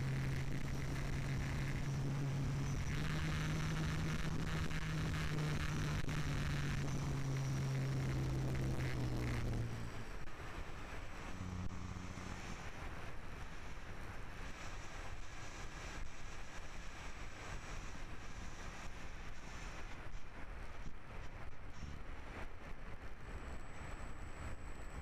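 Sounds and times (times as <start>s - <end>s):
electric motor drone: 0.0s - 20.0s.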